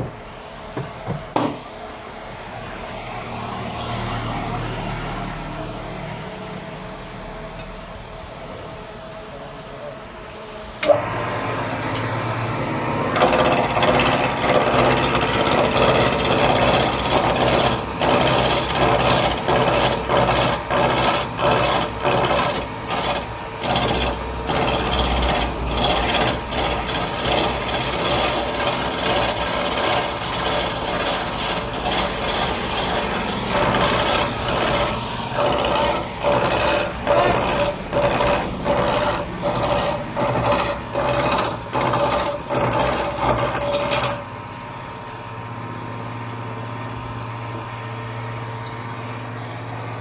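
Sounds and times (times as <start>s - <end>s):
lathe motor humming: 10.3s - 50.0s
chisel scraping spinning wood: 10.8s - 44.4s.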